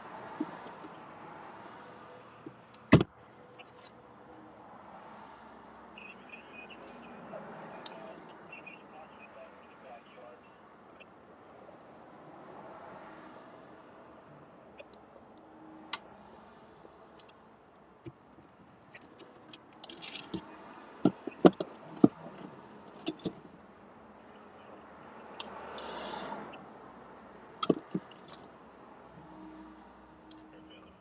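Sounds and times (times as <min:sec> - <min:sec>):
clicks and clatters of objects moved: 0:18.0 - 0:23.5, 0:27.6 - 0:28.5.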